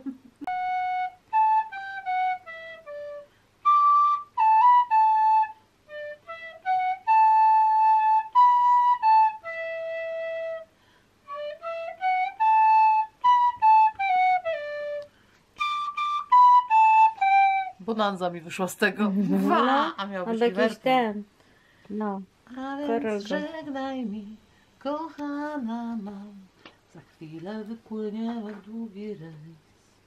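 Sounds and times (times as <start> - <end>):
fipple flute melody: 0.0 - 17.9.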